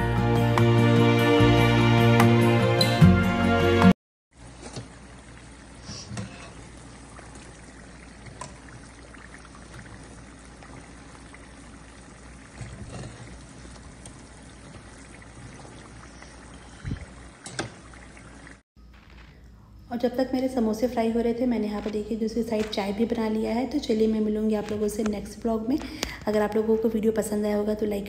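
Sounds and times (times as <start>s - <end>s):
oil sizzling and bubbling: 4.3s - 18.7s.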